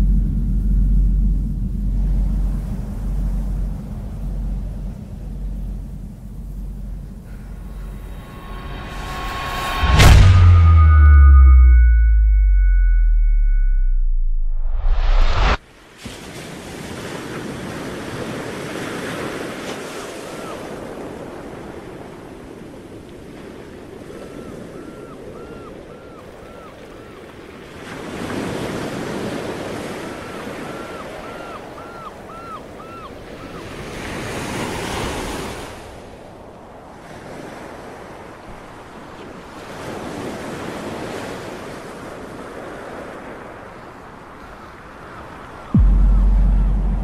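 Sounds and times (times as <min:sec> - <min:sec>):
wind: 0:00.0 - 0:47.0
sea waves breaking on beach: 0:15.7 - 0:45.7.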